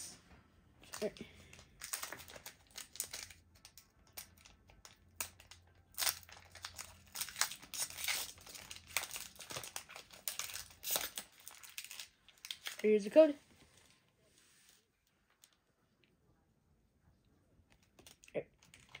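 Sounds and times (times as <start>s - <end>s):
foil wrapper crinkling and tearing: 0.8s - 13.0s, 17.9s - 19.0s.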